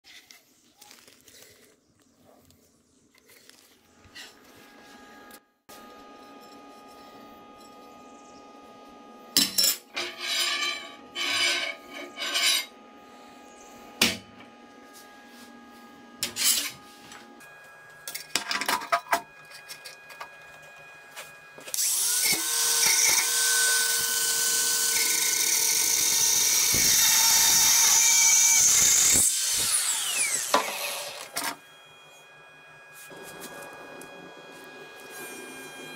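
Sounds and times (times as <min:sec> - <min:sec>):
power tool running: 0:21.7 - 0:31.7.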